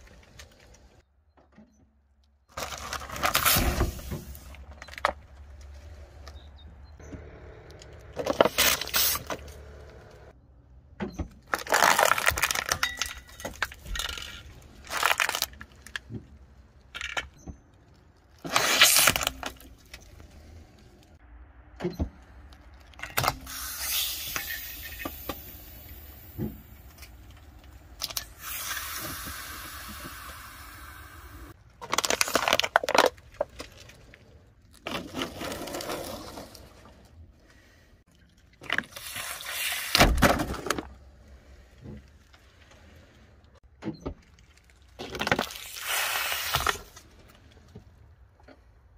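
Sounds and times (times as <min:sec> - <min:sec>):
plastic bottles crunching and popping: 0:02.5 - 0:05.8, 0:11.4 - 0:21.1, 0:31.6 - 0:36.6, 0:38.1 - 0:41.0, 0:44.2 - 0:47.7.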